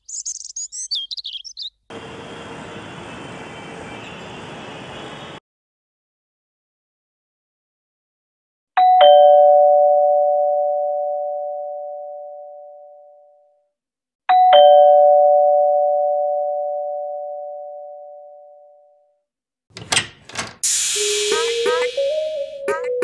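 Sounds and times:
two-tone doorbell chime: 8.8s - 12.4s, 14.3s - 17.6s.

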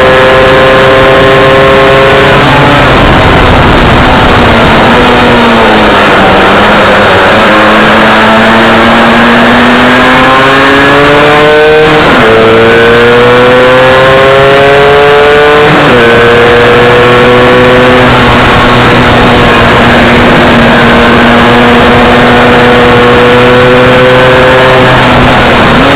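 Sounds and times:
motorcycle engine at full throttle: 0.0s - 25.9s
wind rushing: 1.3s - 8.8s.

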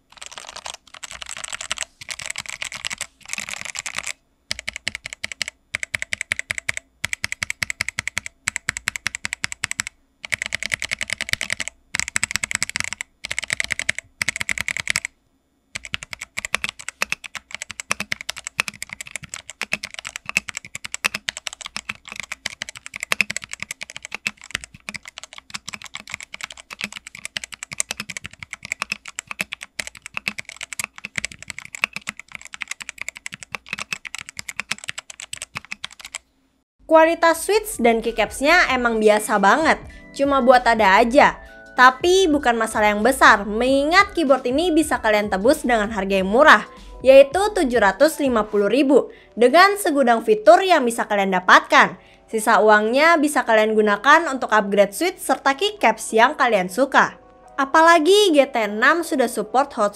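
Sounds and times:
mechanical keyboard typing: 0.0s - 15.1s, 15.7s - 36.2s.

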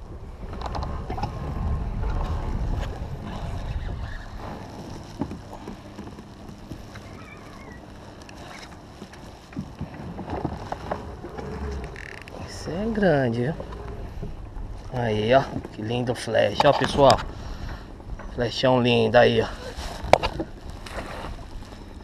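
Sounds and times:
water sloshing against kayak hull: 0.0s - 15.8s
wind rumbling on microphone: 0.0s - 22.0s.

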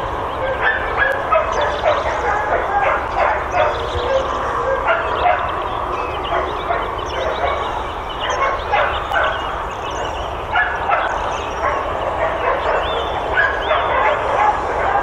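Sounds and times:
many dogs barking and yelping: 0.0s - 15.0s.

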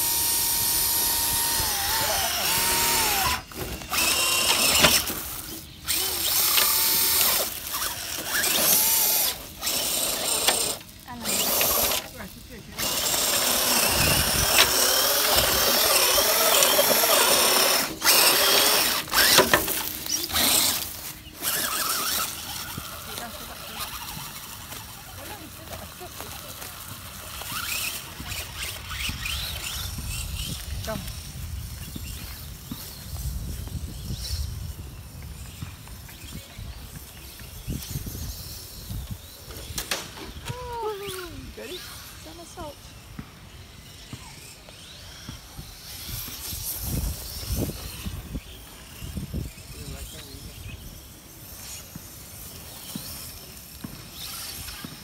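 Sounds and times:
electric motor and gears whining: 0.0s - 55.0s.

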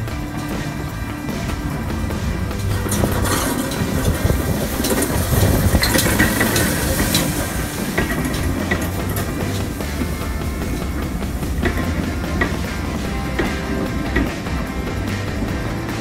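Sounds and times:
wheels clicking over rail joints: 0.0s - 16.0s
steam locomotive rolling past: 0.4s - 16.0s
steam hiss: 3.3s - 14.8s.

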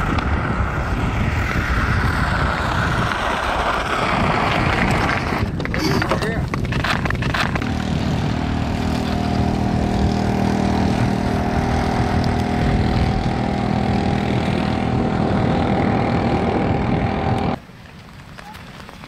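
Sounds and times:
engine humming steadily: 7.6s - 17.7s.

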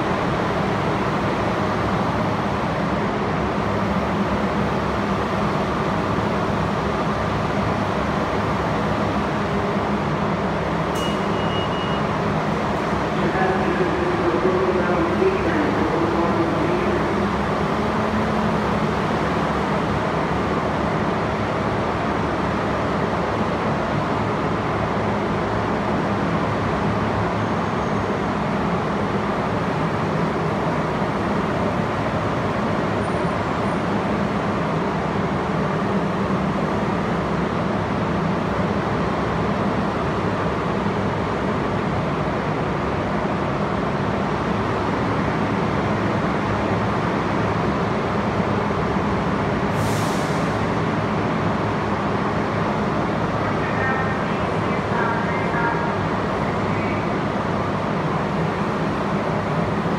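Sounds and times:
subway train equipment humming: 0.0s - 59.9s.

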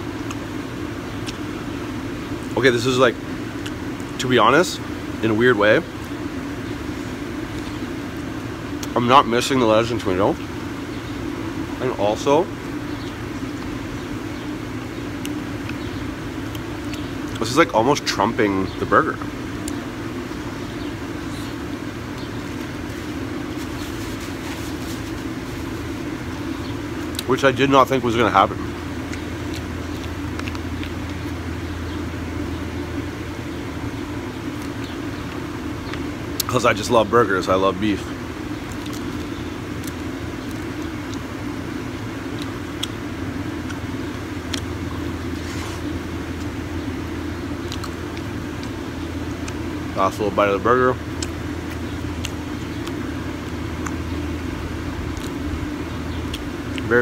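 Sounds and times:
city background hum: 0.0s - 57.0s
faint chewing: 15.1s - 17.5s, 28.9s - 32.0s, 38.6s - 41.4s, 42.2s - 46.6s, 47.5s - 49.8s, 51.1s - 54.4s, 55.0s - 56.9s.

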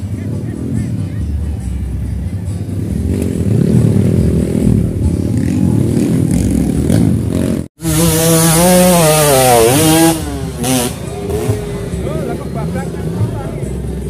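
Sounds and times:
dirt bike engine revving: 2.8s - 13.2s.

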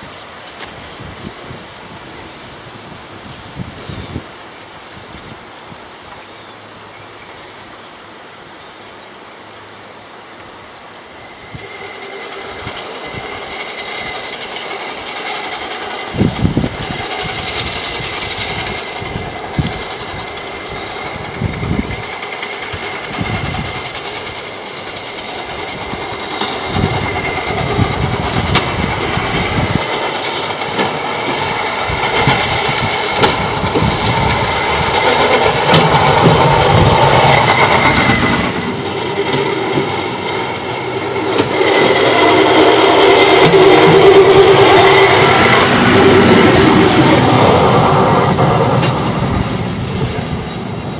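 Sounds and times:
wheels knocking on rails: 11.5s - 50.9s.

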